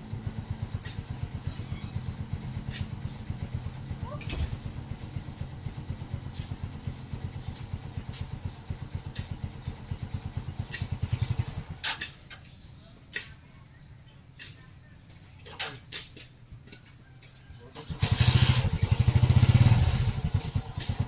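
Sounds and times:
small engine running: 0.0 - 12.0, 17.7 - 21.0
sharp swishing clicks: 2.7 - 3.0, 13.1 - 13.4.

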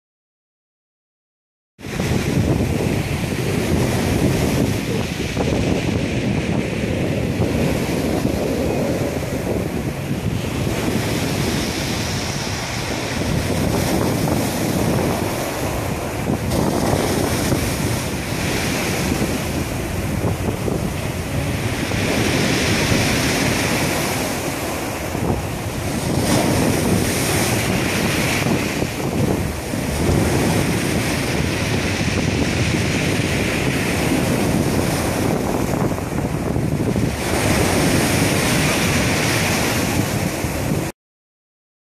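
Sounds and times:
sea waves breaking on rocks: 1.8 - 40.9
wind buffeting microphone: 1.8 - 40.9.

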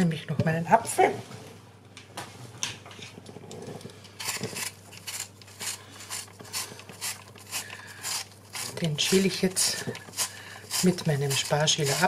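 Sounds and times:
peeler scraping apple skin: 4.2 - 12.0.

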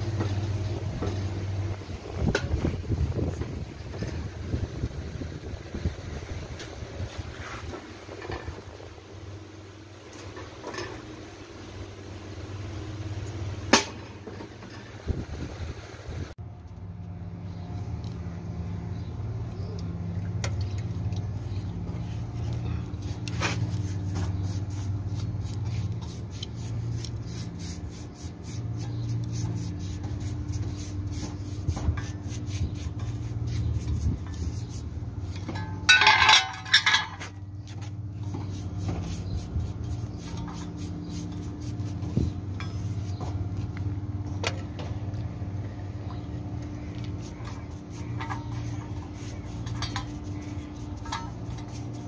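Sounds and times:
low machine hum: 0.0 - 52.0
paintbrush scraping on metal: 22.7 - 43.4, 47.2 - 52.0.

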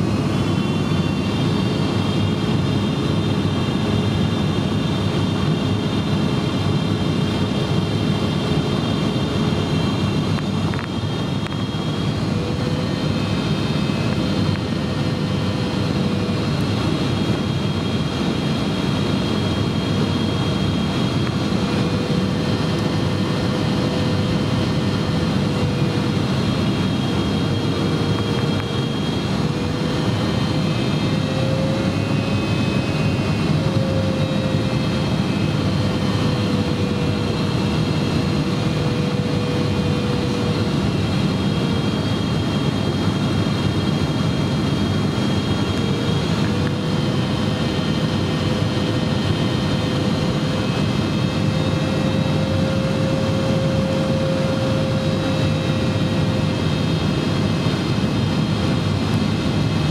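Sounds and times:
jet engine roar inside cabin: 0.0 - 59.9
humming tone: 9.0 - 42.9, 44.2 - 57.7.

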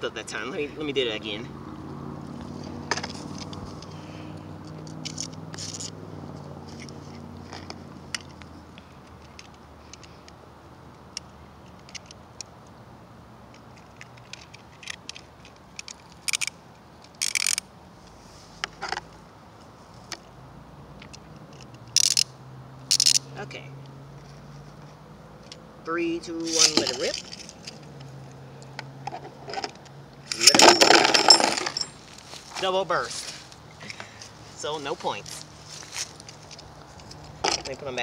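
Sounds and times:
plastic parts clicking and scraping: 4.7 - 6.0, 6.7 - 10.4, 11.1 - 12.5, 13.5 - 17.6, 21.0 - 22.3, 22.9 - 23.2
short plastic rasps: 14.0 - 17.6, 21.6 - 22.3, 22.9 - 23.2.

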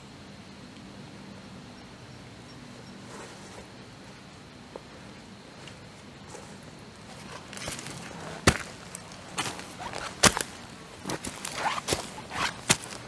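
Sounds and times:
footsteps crunching dry leaves: 6.0 - 13.0
twigs snapping: 7.4 - 13.0.

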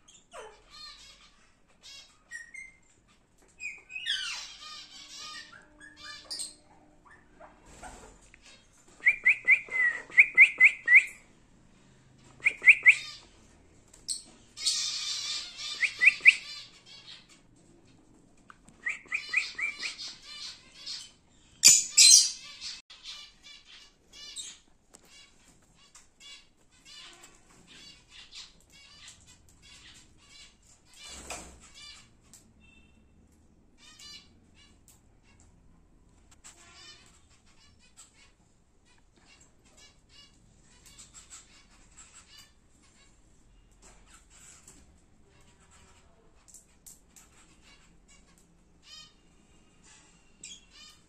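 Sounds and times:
birds chirping: 0.0 - 35.5
birds screechy chatter: 0.1 - 11.2, 14.1 - 17.5, 18.8 - 33.0.

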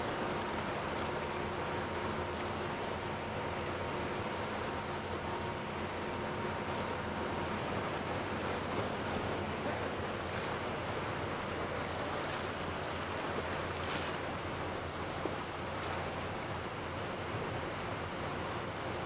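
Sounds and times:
small waves lapping in shallows: 0.0 - 19.0
water splashes: 6.6 - 16.8.

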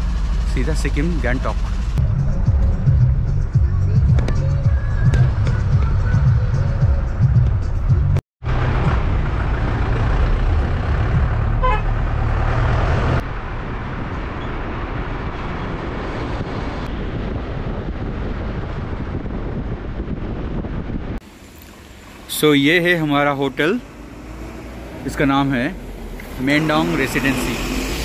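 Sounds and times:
car driving on highway: 0.0 - 28.0
car horn toot: 11.6 - 12.0.

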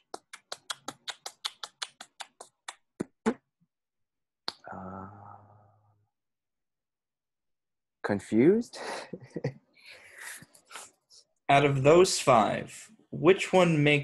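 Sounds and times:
person humming hmm: 4.6 - 5.7.

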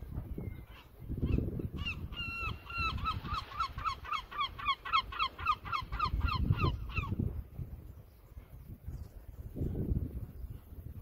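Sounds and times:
gull calling: 0.6 - 7.2.

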